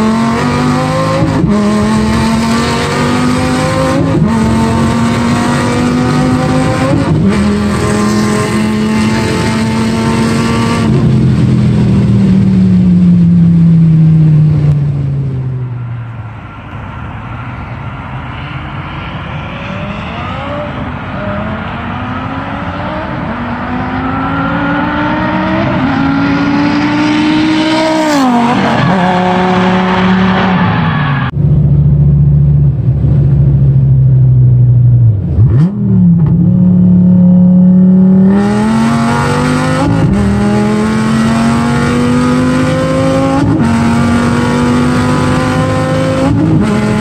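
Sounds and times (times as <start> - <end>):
sports car accelerating and passing: 0.0 - 47.0.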